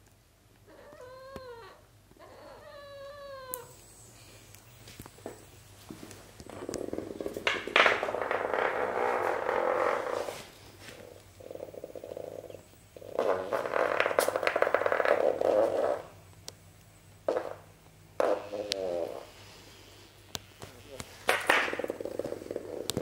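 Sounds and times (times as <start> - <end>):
toy bug buzzing on wooden floor: 6.5 - 10.3, 11.0 - 16.2, 17.3 - 23.0.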